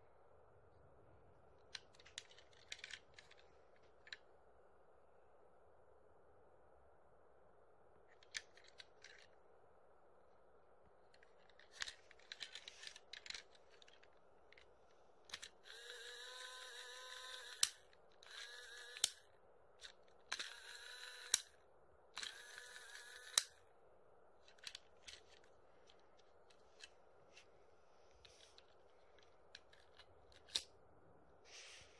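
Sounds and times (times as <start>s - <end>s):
toy train motor whirring: 11.5s - 14.0s, 15.3s - 21.6s, 22.2s - 23.6s.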